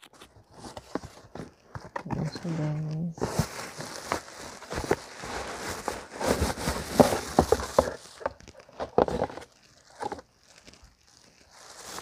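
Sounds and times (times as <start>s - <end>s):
plastic wrapping crinkling: 0.0s - 12.0s
cardboard box rustling and knocking: 3.2s - 10.2s.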